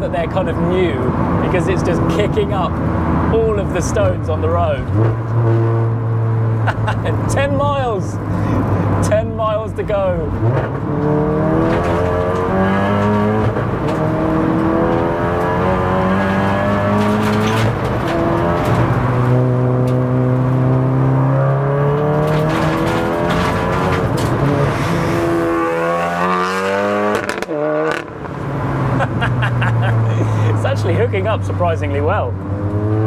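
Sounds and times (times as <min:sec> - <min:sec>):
car engine accelerating through gears: 0:04.3 - 0:07.3, 0:10.3 - 0:30.7, 0:32.4 - 0:33.0.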